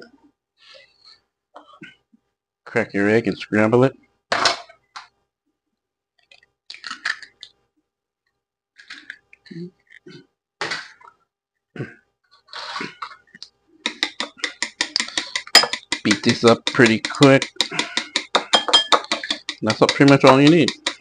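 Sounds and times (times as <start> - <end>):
egg cracked against bowl: 13.8 - 21.0
chopsticks clicking against bowl: 13.9 - 21.0.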